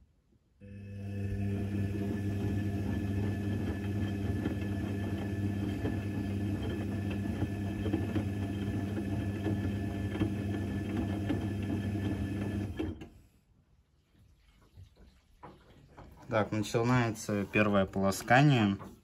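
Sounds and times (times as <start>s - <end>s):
washing machine humming and rattling: 0.6s - 13.1s.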